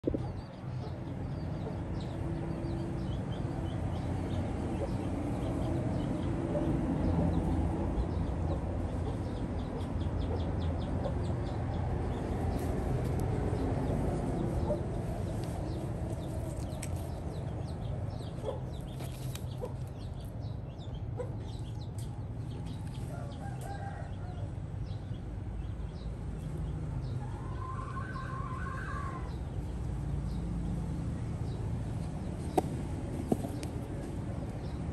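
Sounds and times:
chickens clucking: 3.9s - 7.5s, 8.2s - 11.5s.

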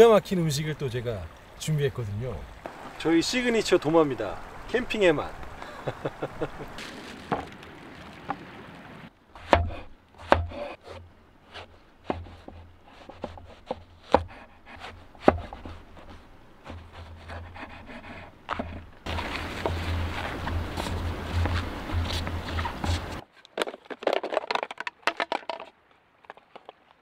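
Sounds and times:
knife chopping on wooden board: 9.4s - 15.8s.

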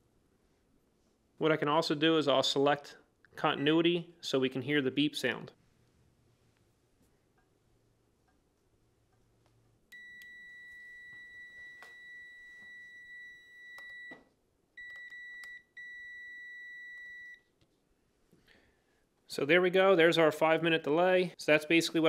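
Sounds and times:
multimeter continuity beeping: 9.9s - 14.2s, 14.8s - 17.4s.

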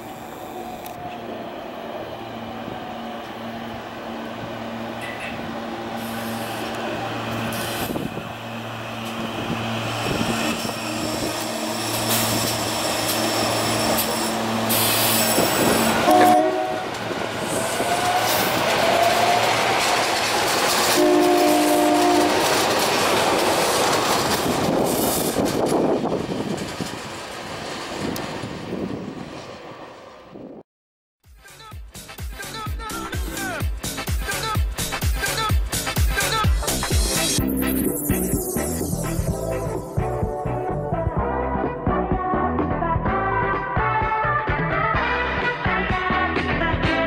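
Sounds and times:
rail and wheel noise: 0.0s - 30.6s, 32.4s - 47.0s
train motor hum: 0.0s - 30.6s
train horn chord: 4.5s - 6.7s, 15.6s - 17.0s, 20.9s - 22.6s.

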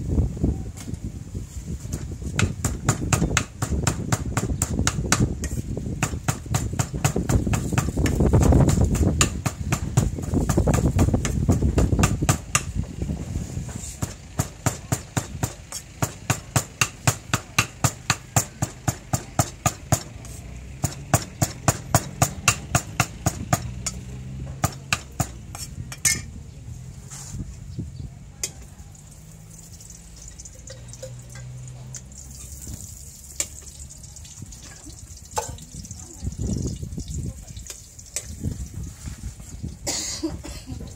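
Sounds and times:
cleaver chopping on wooden board: 2.4s - 12.7s, 20.8s - 23.8s, 24.5s - 25.7s.

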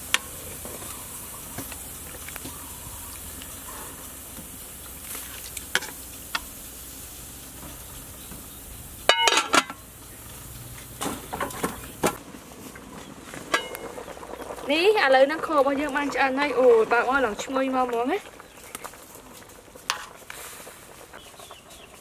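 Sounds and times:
pot simmering with hiss: 0.0s - 22.0s
metal pot lid clanking: 9.1s - 9.8s, 13.5s - 13.9s.

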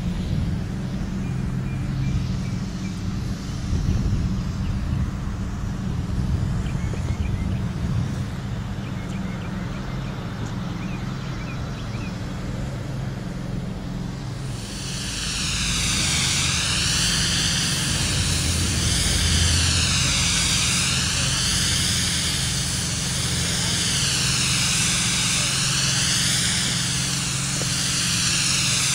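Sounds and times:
low machine hum: 0.0s - 28.9s
spray gun hissing: 0.0s - 28.9s.

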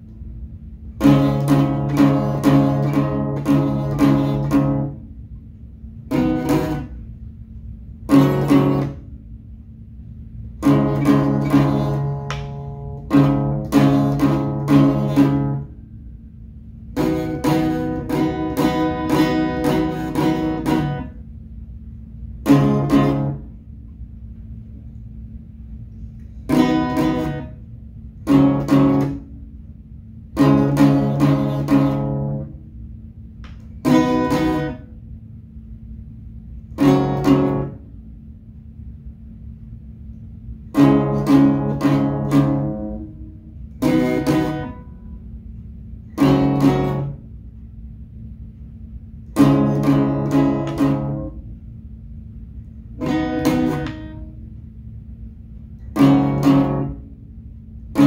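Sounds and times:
acoustic guitar strumming chords: 1.0s - 5.1s, 6.1s - 7.0s, 8.1s - 9.1s, 10.6s - 15.8s, 17.0s - 21.2s, 22.4s - 23.6s, 26.5s - 27.6s, 28.2s - 29.4s, 30.4s - 32.6s, 33.8s - 34.9s, 36.7s - 37.9s, 40.7s - 45.2s, 46.0s - 47.3s, 49.3s - 51.5s, 53.0s - 54.4s, 55.8s - 57.2s.

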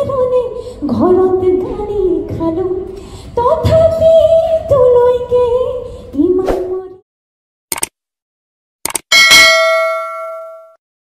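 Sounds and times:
brief clicks: 7.7s - 8.0s, 8.8s - 9.0s
bell ding: 9.1s - 10.8s.

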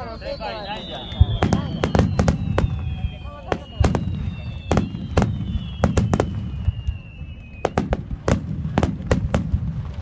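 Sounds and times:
high falling whistle: 0.0s - 8.0s.

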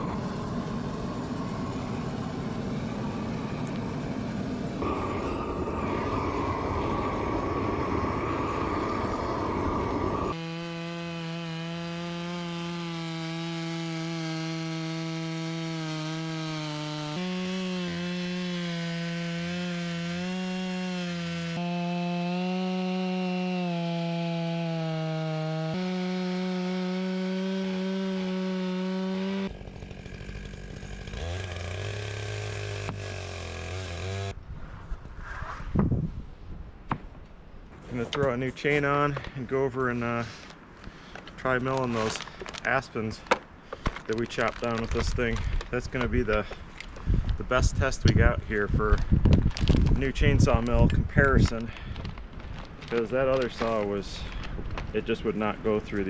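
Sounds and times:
propane torch roaring: 0.0s - 10.4s
chainsaw cutting through log: 0.0s - 34.4s, 41.0s - 48.2s, 48.9s - 56.0s.

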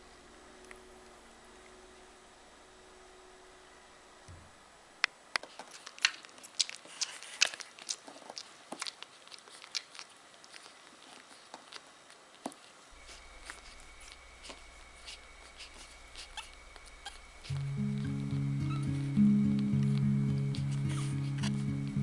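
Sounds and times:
puppies suckling wet clicks: 5.4s - 12.4s, 13.0s - 21.7s.

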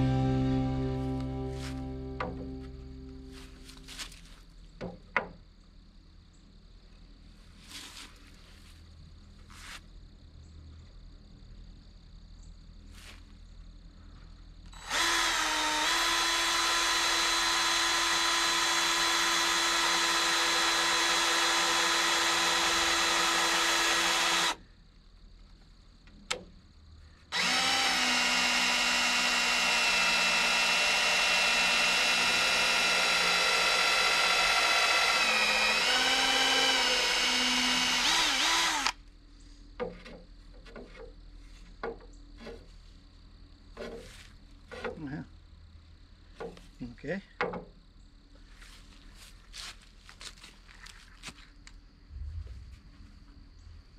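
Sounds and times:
electric drill running: 14.8s - 24.6s, 27.3s - 39.0s.

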